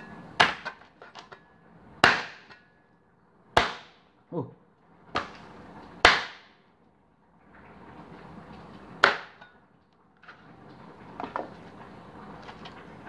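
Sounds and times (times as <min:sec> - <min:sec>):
cleaver chopping on plastic board: 0:03.6 - 0:04.0.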